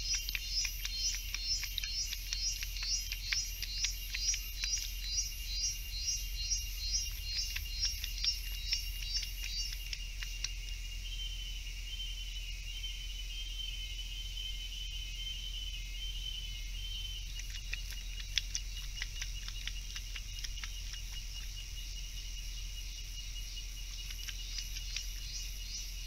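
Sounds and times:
insects chirping: 0.0 - 26.0
animal lapping water: 17.3 - 21.5.

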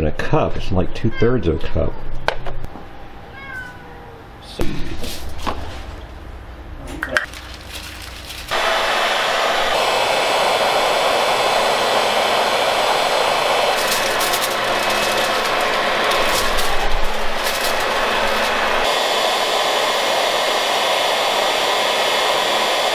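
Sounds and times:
foil rustling: 7.2 - 8.6, 13.3 - 18.9
router spindle whirring: 8.5 - 22.9.

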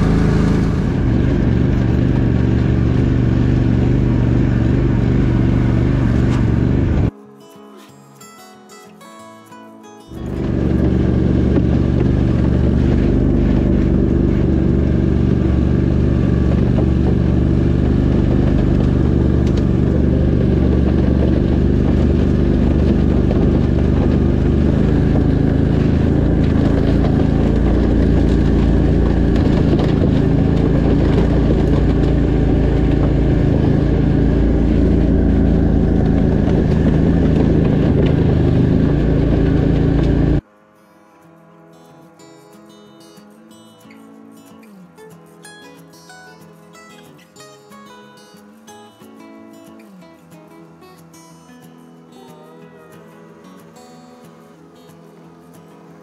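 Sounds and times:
vehicle engine running steadily: 0.0 - 7.1, 10.1 - 40.4.

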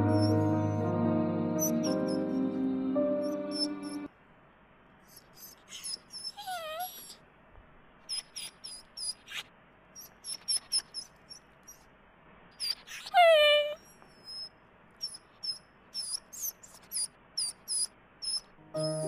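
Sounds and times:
background music: 0.0 - 4.1, 18.6 - 19.0
high-pitched chirps: 0.0 - 4.1, 14.2 - 19.0.

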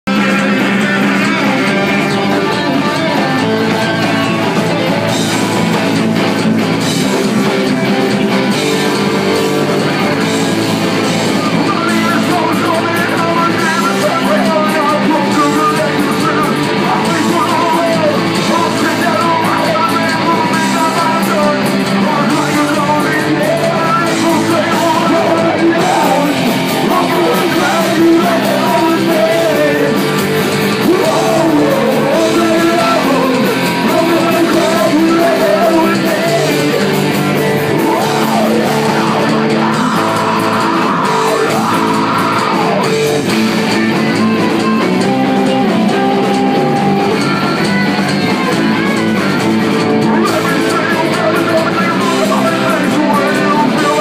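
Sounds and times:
live band with electric guitars: 0.0 - 54.0
person singing: 11.2 - 54.0.

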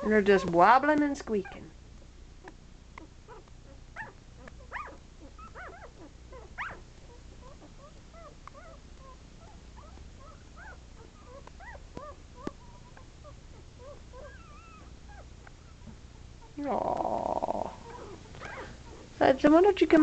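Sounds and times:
puppies squeaking: 2.4 - 15.8, 17.8 - 19.1.

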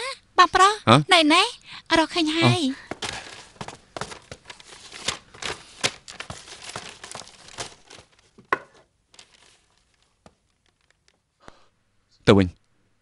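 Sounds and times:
papers rustling and crinkling: 2.4 - 11.3.

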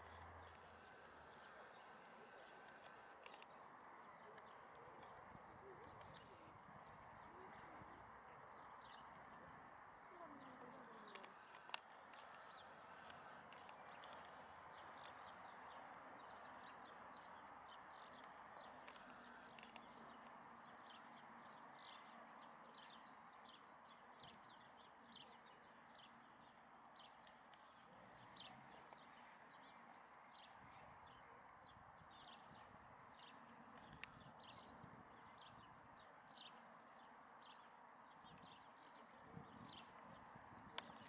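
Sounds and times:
steady low hiss: 0.0 - 4.2
small birds chirping: 0.0 - 41.0.

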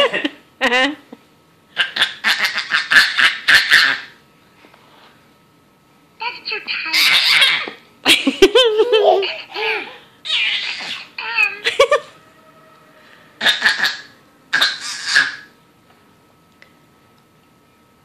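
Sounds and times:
high-pitched giggling: 6.9 - 12.2.

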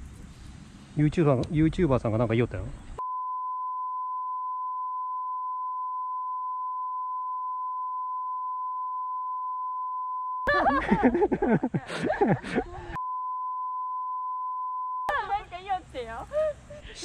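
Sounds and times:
censor bleep tone: 3.0 - 10.5, 13.0 - 15.1
people talking: 15.1 - 17.0.

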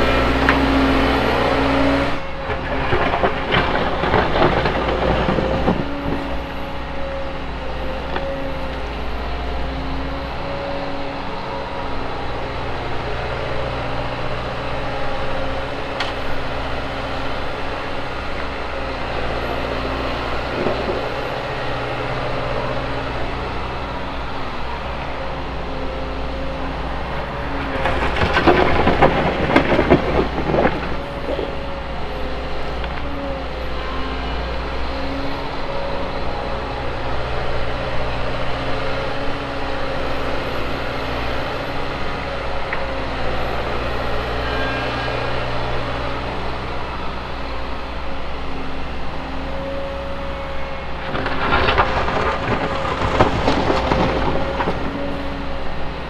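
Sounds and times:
excavator diesel engine running: 0.0 - 56.0
soil crashing into steel truck bed: 27.8 - 31.6, 51.0 - 55.2.

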